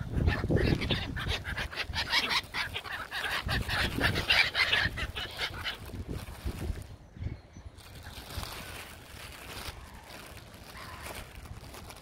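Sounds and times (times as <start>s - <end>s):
gulls calling: 0.0s - 6.3s.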